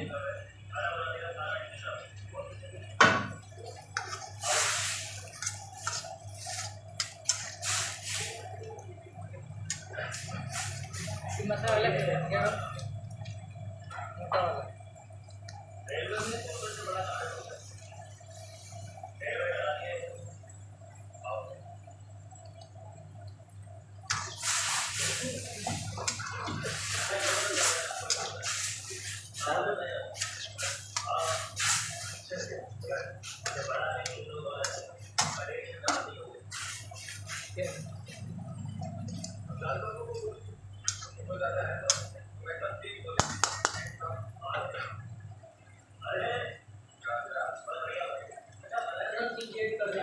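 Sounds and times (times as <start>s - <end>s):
water bubbling in a pan: 0.0s - 50.0s
spatula stirring noodles: 3.6s - 8.6s, 24.0s - 38.2s.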